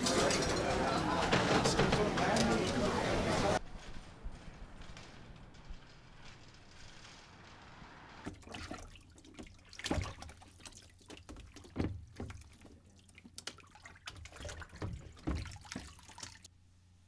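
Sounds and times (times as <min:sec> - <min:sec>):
water sloshing and splashing: 0:08.2 - 0:16.5
dishes washed in soapy water: 0:08.3 - 0:16.5.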